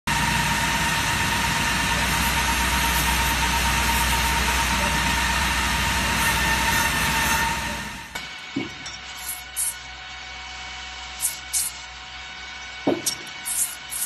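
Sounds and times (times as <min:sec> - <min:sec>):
constant whine: 0:00.1 - 0:14.0
sanding belts rushing: 0:00.6 - 0:08.0, 0:09.1 - 0:09.9, 0:11.2 - 0:11.9, 0:12.9 - 0:14.0.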